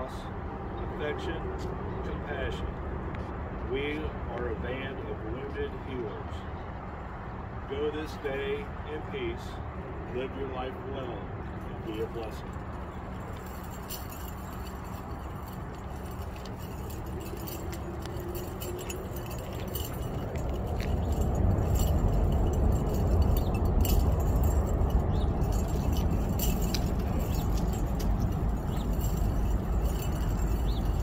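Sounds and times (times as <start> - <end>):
metal tags on chains clinking: 11.5 - 31.0.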